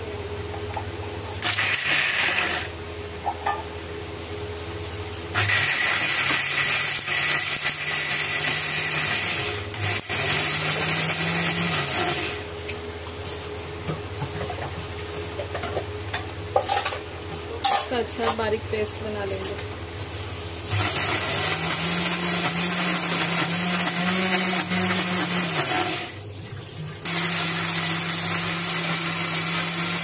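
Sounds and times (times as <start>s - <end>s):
electric mixer grinder grinding: 1.4s - 2.8s, 5.3s - 12.5s, 20.7s - 26.2s, 27.1s - 30.0s.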